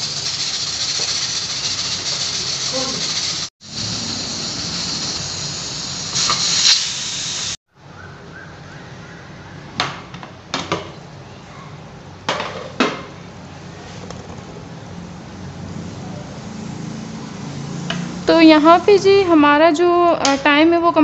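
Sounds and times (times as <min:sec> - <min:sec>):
pressure cooker steam hiss: 0:00.0 - 0:07.6.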